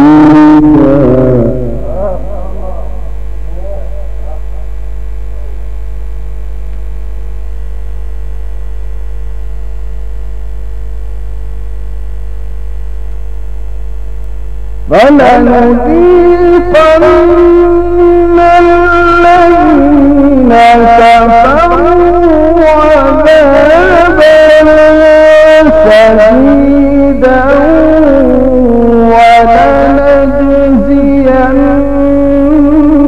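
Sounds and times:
man reciting melodically: 0:00.0 - 0:05.6, 0:14.9 - 0:33.0
electrical mains hum: 0:00.0 - 0:33.0.

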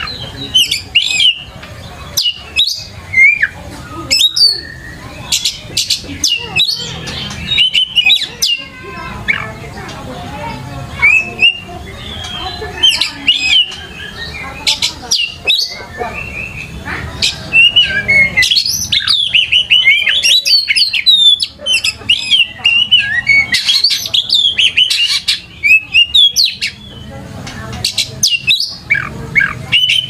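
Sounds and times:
bird singing whistles and chirps: 0:00.0 - 0:01.5, 0:02.2 - 0:05.6, 0:06.2 - 0:08.6, 0:11.0 - 0:16.8, 0:17.4 - 0:27.1.

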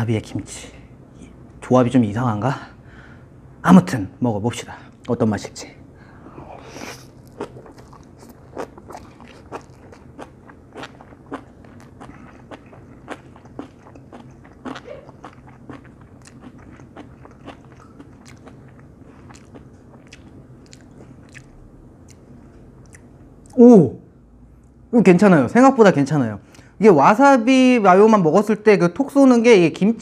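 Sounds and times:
chewing with wet clicks: 0:07.2 - 0:23.6.

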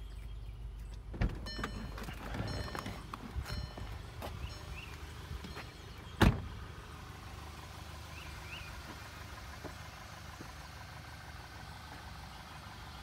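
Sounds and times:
car engine idling: 0:00.0 - 0:13.0
car door shutting: 0:05.4 - 0:06.6.

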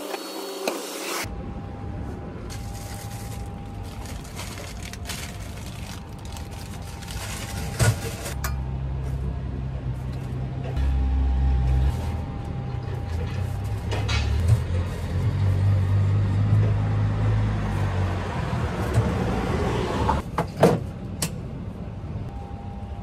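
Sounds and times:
paper bag rustling: 0:02.5 - 0:08.4.

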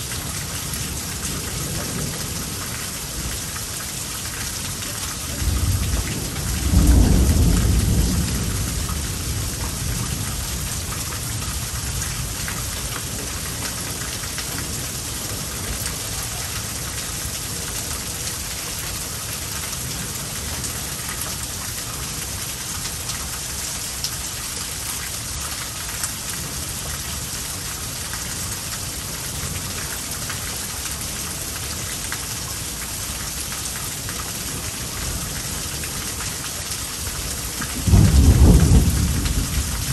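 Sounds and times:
heavy rain pouring: 0:00.0 - 0:39.9
thunder clap rumbling: 0:05.3 - 0:12.0, 0:37.7 - 0:39.9.

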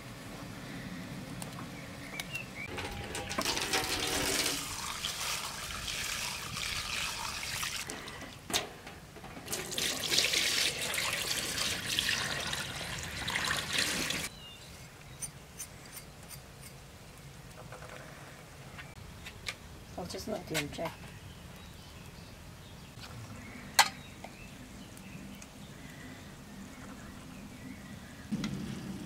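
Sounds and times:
water running and sloshing: 0:03.2 - 0:08.2, 0:09.4 - 0:14.3.

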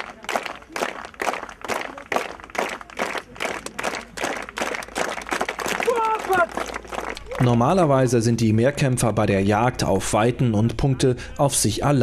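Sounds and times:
crowd clapping in rhythm: 0:00.0 - 0:07.8.

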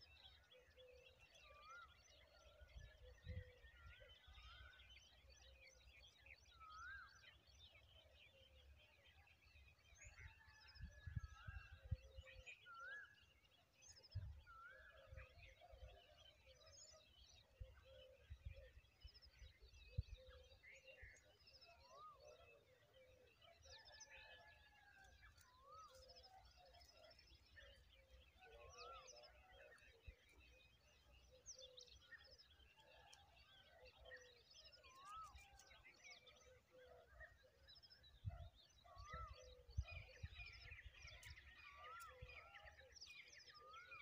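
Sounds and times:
small birds chirping: 0:12.6 - 0:44.0.

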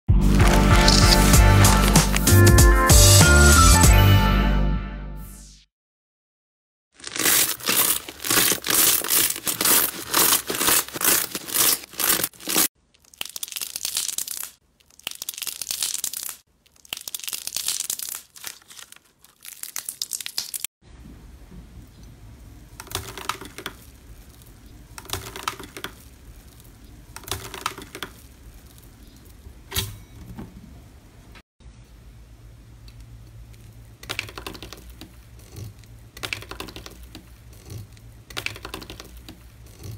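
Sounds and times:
foil crinkling: 0:00.2 - 0:02.5, 0:07.0 - 0:20.7
slime crackling: 0:00.3 - 0:02.4, 0:07.0 - 0:20.7.

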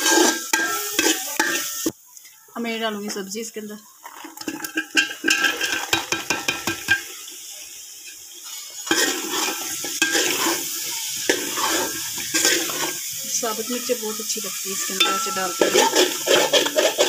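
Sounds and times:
metal spatula scraping pot: 0:00.0 - 0:01.9, 0:04.0 - 0:07.1, 0:08.0 - 0:13.2, 0:14.8 - 0:17.0
vegetables clattering into pot: 0:00.0 - 0:02.0, 0:04.0 - 0:07.2, 0:08.0 - 0:13.2, 0:15.0 - 0:17.0
frying sizzle: 0:00.0 - 0:17.0.

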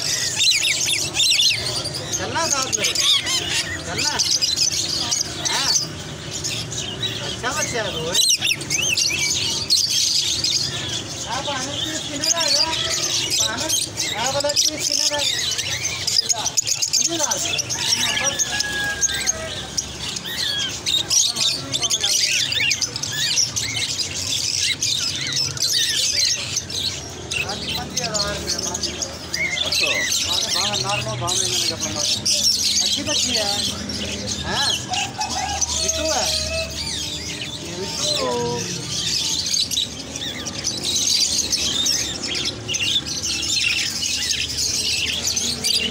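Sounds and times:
parrots chirping in chorus: 0:00.0 - 0:45.9.

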